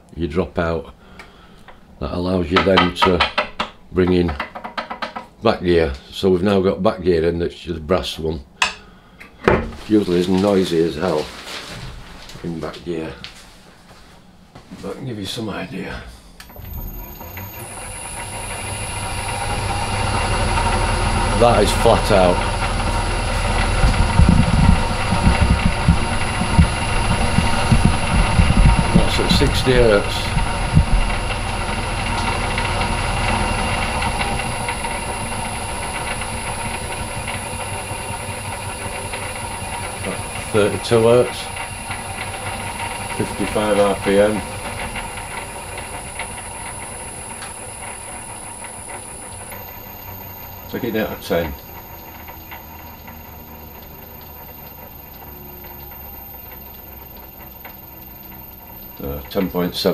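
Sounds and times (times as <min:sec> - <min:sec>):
faint irregular ticking: 0:16.4 - 0:59.9
lathe running: 0:16.4 - 0:59.9.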